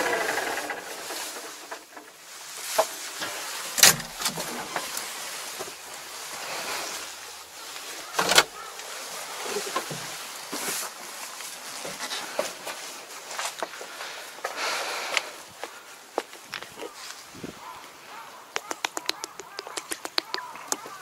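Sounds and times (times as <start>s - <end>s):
loud sharp clunks: 3.8s - 4.6s
cab door clicks and rattles: 3.8s - 4.9s, 8.2s - 8.6s.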